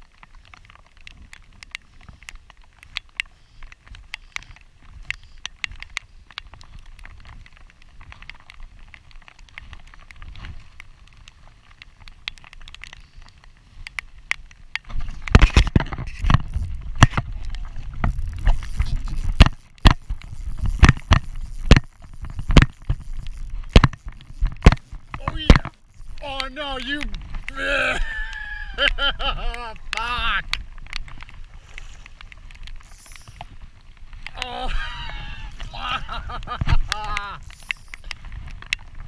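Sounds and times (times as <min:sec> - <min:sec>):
low rumbling: 0:16.1 - 0:25.2.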